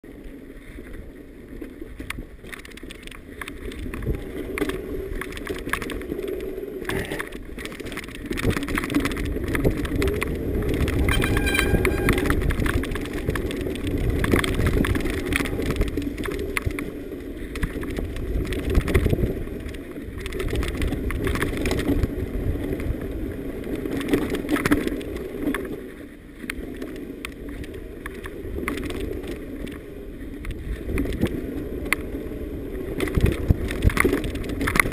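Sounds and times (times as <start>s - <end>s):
wind buffeting microphone: 0.4s - 34.9s
bike chain and frame rattling: 2.4s - 25.8s
brief high-pitched squeal: 11.1s - 12.4s.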